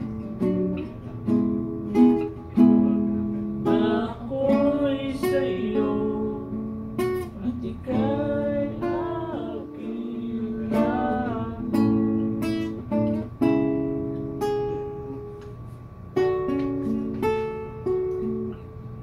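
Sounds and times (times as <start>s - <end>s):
acoustic guitar strumming: 0.0s - 19.0s
man singing: 3.6s - 6.6s, 7.3s - 12.1s.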